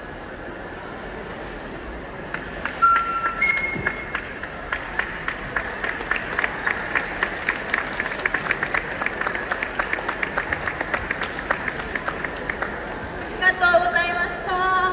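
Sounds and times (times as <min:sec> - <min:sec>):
audience applauding: 0:02.3 - 0:13.4.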